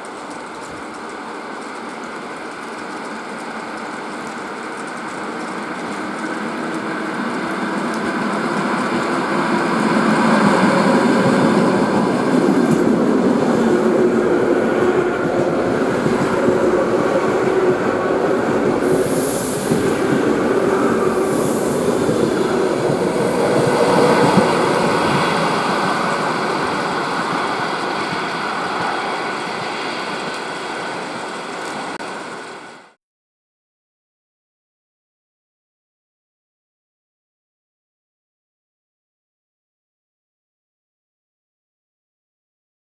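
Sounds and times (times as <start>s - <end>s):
train wheels rumbling: 0.0s - 33.0s.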